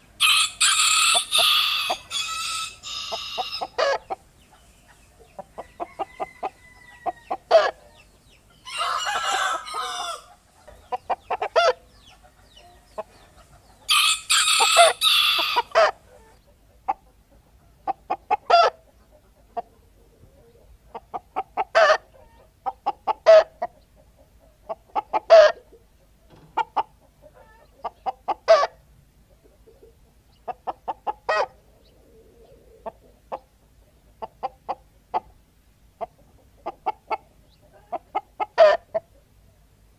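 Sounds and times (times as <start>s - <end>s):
rooster crowing: 0.2s - 4.1s, 5.6s - 7.9s, 8.6s - 10.4s, 13.9s - 16.3s
hens cackling: 0.2s - 35.4s, 36.0s - 39.3s.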